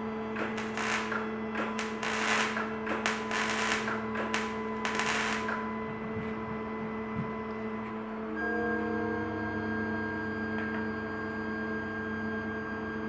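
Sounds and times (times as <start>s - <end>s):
welding arc crackling: 0.4s - 5.7s.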